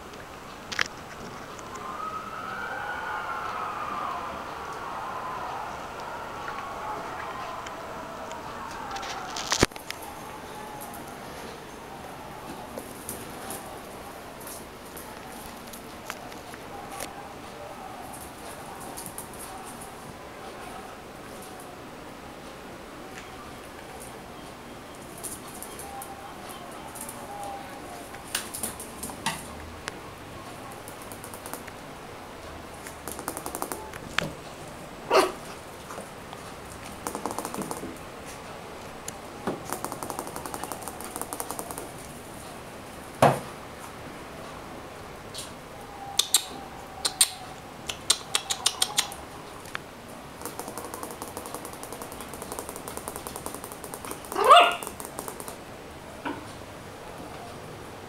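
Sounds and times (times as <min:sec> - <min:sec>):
puppy yelping: 0:35.1 - 0:35.5, 0:54.1 - 0:55.0
puppy claws clicking on tiles: 0:36.9 - 0:38.0, 0:39.6 - 0:42.2, 0:46.2 - 0:49.2, 0:50.4 - 0:55.6
dog claws clicking on tiles: 0:47.1 - 0:49.2.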